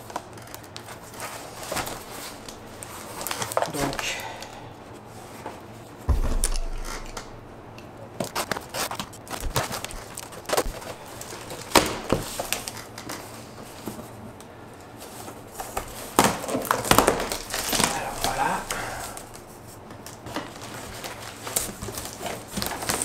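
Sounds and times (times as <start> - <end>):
box thumping: 6.1 - 7.5.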